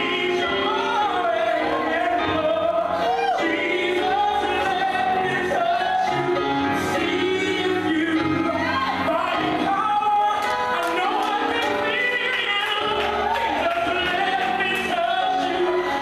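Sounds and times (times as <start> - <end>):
backing music: 0.0 - 16.0
person singing gospel: 0.0 - 16.0.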